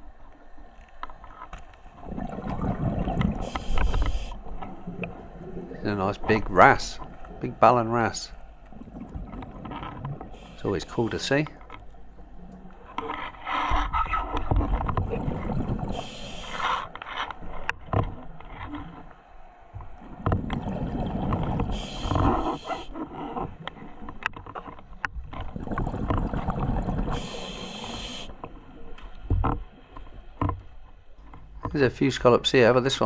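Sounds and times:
exhaled bubbles burbling: 2.0 - 11.2, 15.0 - 16.2, 20.3 - 22.6, 25.5 - 28.2
regulator inhale hiss: 3.4 - 4.4, 10.3 - 11.0, 15.9 - 16.9, 21.7 - 22.9, 27.1 - 28.4.

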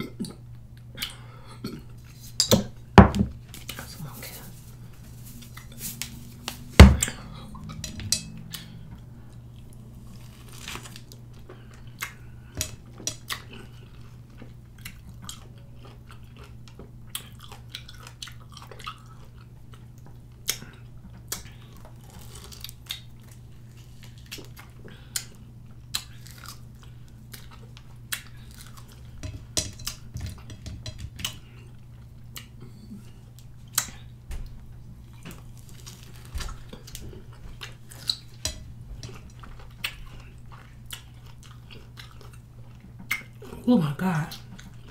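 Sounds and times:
loud knock: 6.8 - 7.1.

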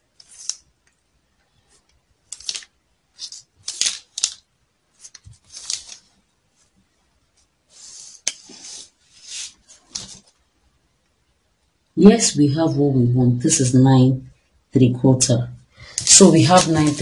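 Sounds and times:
tape measure sliding on paper: 0.2 - 0.6, 5.0 - 6.1, 7.7 - 10.2, 16.0 - 17.0
paper rustling and crinkling: 2.3 - 4.4, 5.0 - 6.2, 7.8 - 10.4, 15.9 - 17.0.

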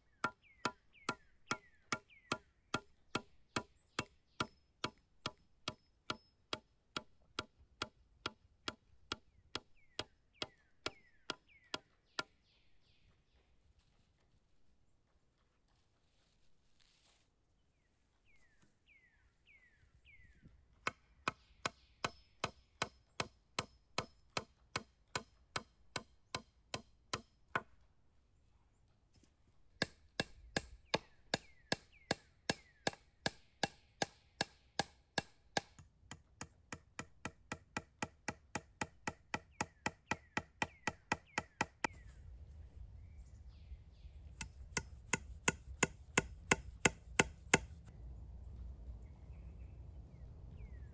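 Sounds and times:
hatchet striking wooden poles: 0.1 - 12.4, 20.8 - 27.9, 29.8 - 41.9, 44.4 - 47.9.

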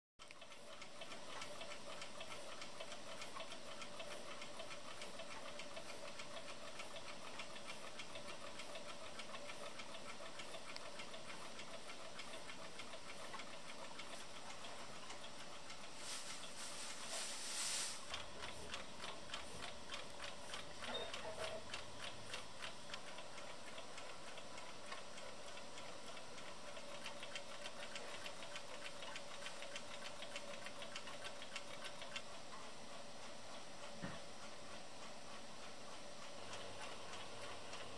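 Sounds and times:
mechanical clock ticking: 0.2 - 17.2, 17.9 - 37.9
faint steady hum: 0.2 - 37.9
short burst of hiss: 16.0 - 18.1.

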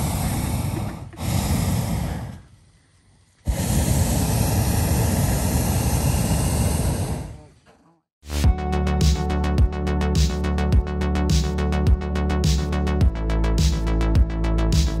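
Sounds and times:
propane burner blasts: 0.0 - 7.6.

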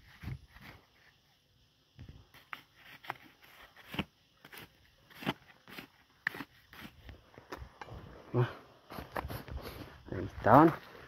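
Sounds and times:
digging scrapes in stony soil: 2.4 - 7.1, 8.8 - 10.9.

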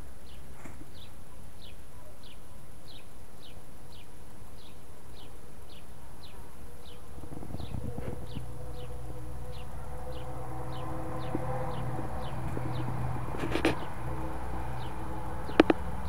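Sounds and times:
small bird chirping: 0.2 - 14.0
low rumble: 6.9 - 16.0.

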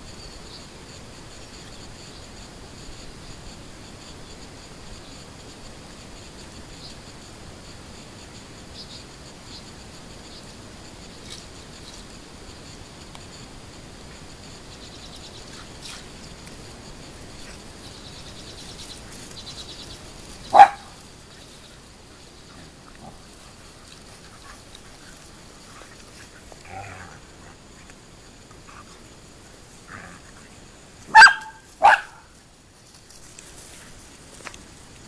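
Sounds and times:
dogs playing rough: 15.4 - 31.2
dog barking: 20.5 - 21.0, 31.1 - 32.3.

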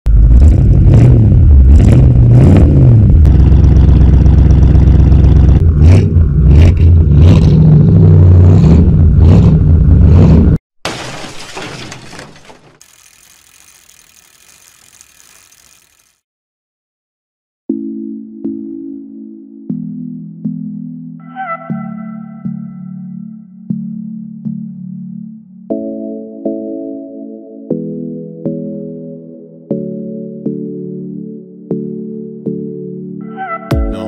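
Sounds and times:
car engine revving: 0.1 - 10.6.

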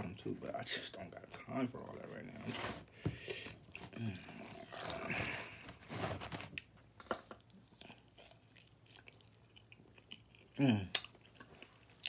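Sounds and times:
man chewing: 6.6 - 12.0.

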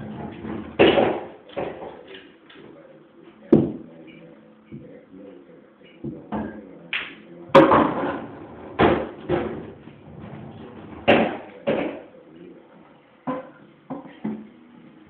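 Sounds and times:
pool balls clacking together: 0.0 - 2.7, 6.0 - 12.1.

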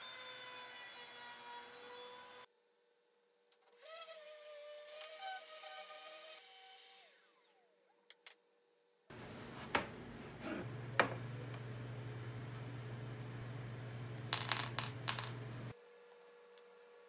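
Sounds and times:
steady low hum: 9.1 - 15.7.

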